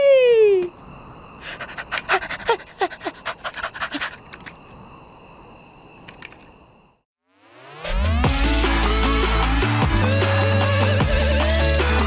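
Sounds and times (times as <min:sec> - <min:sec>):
cartoon dog panting: 0:01.4 - 0:04.5.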